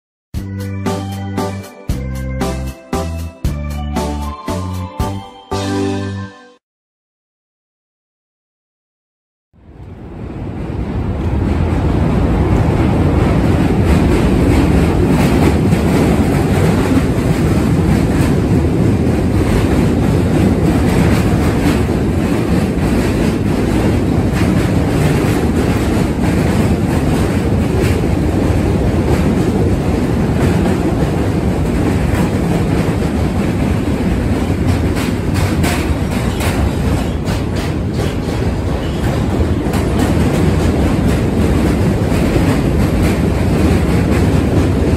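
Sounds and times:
subway train rumbling on bridge: 9.6 - 44.9
rail joints clickety-clack: 9.8 - 44.9.

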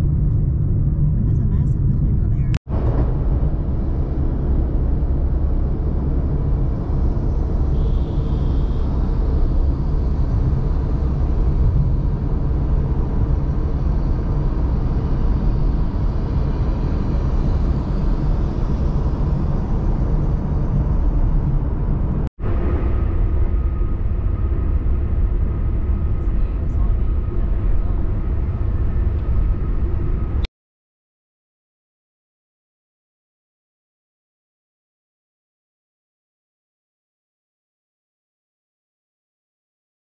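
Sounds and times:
road noise: 0.0 - 30.5
vehicle rumble: 0.0 - 30.5.

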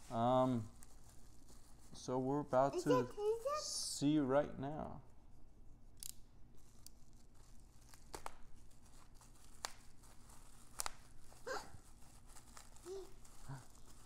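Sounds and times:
bubble wrap crinkling and tearing: 0.0 - 2.8, 6.6 - 14.0.

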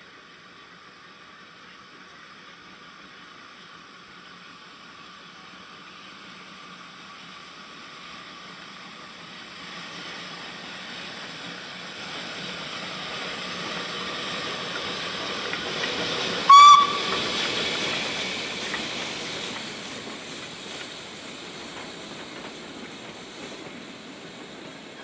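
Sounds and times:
steam locomotive approaching: 0.0 - 25.0
steam whistle blast: 16.5 - 17.5.

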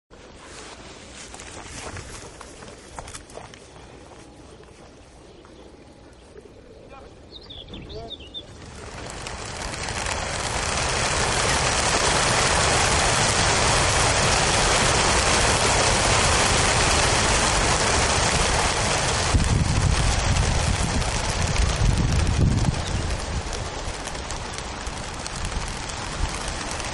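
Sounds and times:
deep rumble: 8.4 - 26.9
pigeon wingbeats rushing: 8.4 - 26.9.

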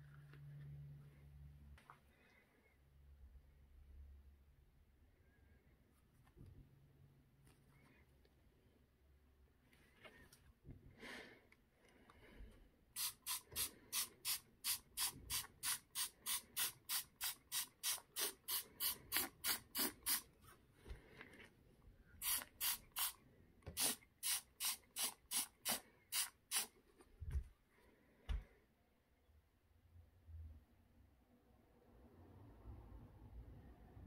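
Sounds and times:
aerosol spray bursts: 13.0 - 20.3, 22.2 - 26.8.

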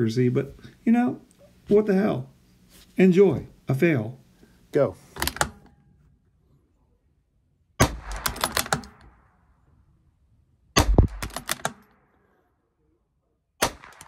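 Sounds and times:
rifle shots: 7.8 - 9.4, 10.8 - 12.1, 13.6 - 14.0
rifle bolt clicks: 8.1 - 9.1, 10.8 - 12.0.

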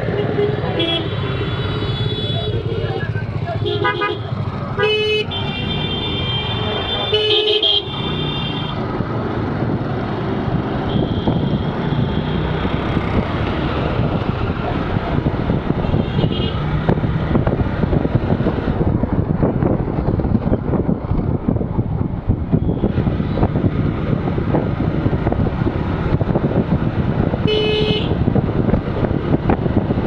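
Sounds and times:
road noise: 0.0 - 30.0
vehicle horns honking: 0.1 - 8.8, 10.8 - 12.4, 15.8 - 16.6, 27.4 - 28.2
wind buffeting microphone: 8.7 - 30.0.

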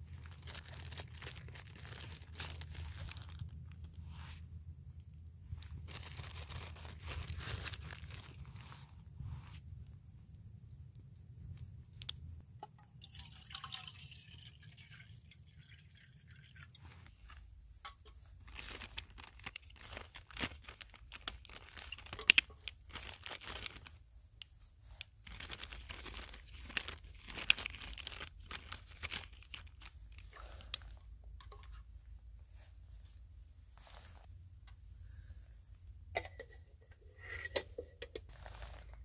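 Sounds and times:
plastic bag crinkling: 0.1 - 4.0, 5.6 - 8.7, 18.4 - 24.0, 25.0 - 31.0.

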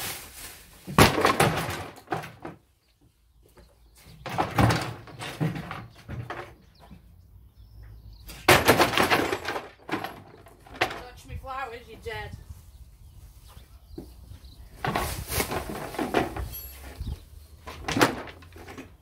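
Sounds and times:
furniture crashing on paving: 0.8 - 2.6, 8.4 - 11.0, 17.6 - 19.0
wooden knocks and clatter: 0.9 - 7.2, 7.9 - 11.4, 14.8 - 19.0.

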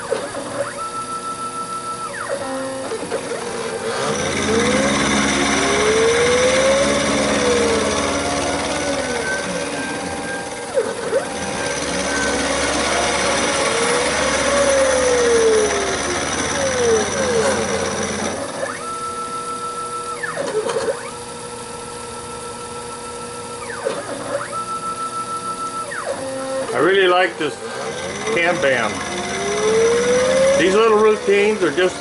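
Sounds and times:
motor whines sliding in pitch: 0.0 - 32.0
mill cutter chewing iron: 3.2 - 18.6, 26.7 - 32.0.

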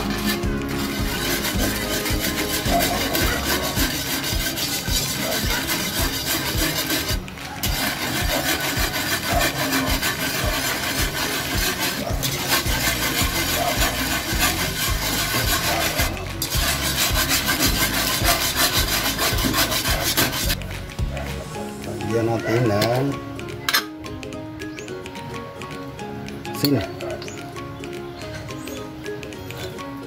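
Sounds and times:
whisk scraping in metal wok: 0.0 - 20.6.

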